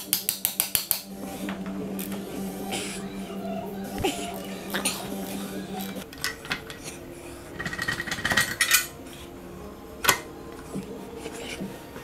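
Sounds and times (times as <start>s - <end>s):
clicking and scraping: 4.8s - 9.2s
hand tools clinking on metal: 7.6s - 9.0s.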